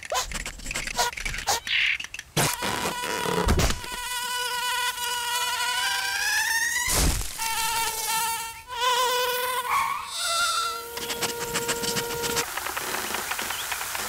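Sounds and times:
cartoon insect buzzing: 2.4s - 12.4s.

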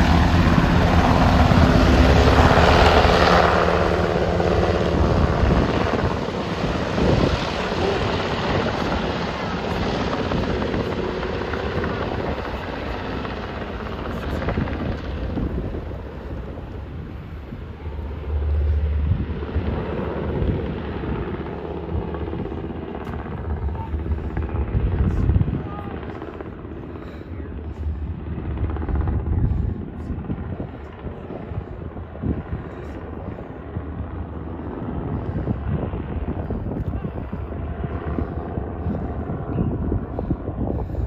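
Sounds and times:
helicopter rotor and turbines: 0.0s - 41.0s.

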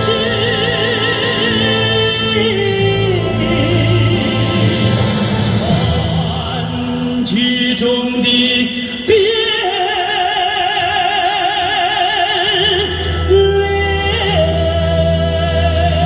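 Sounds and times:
low accompaniment: 0.0s - 9.4s
opera-style singing with vibrato: 0.0s - 16.0s.

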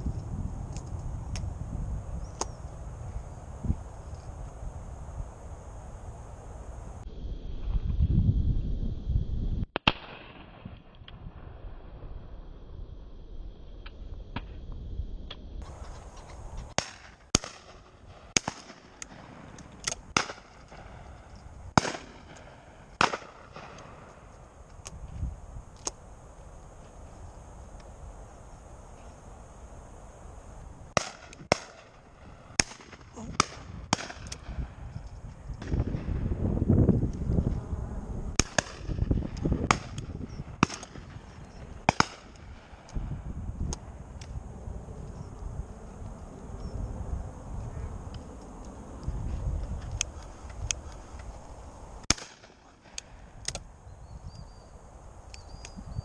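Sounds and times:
distant shotgun shots: 9.8s - 10.7s, 16.7s - 24.1s, 31.0s - 34.8s, 38.4s - 42.9s, 52.1s - 53.0s
loud shotgun shots: 9.8s - 10.7s, 16.7s - 21.1s, 21.7s - 24.0s, 31.0s - 34.7s, 38.4s - 42.8s, 52.1s - 52.9s.

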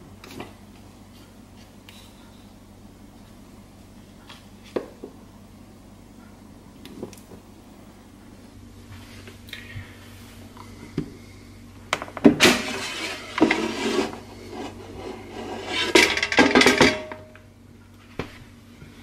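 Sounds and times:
basket drawer scraping rattle: 12.4s - 16.9s
metal basket clattering on counter: 15.9s - 17.3s.

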